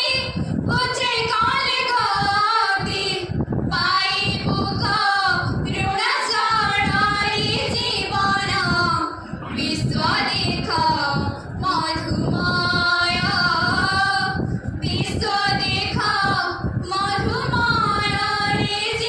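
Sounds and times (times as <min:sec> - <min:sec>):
women singing into microphone: 0:00.0 - 0:19.0
singers breathing: 0:09.1 - 0:09.5.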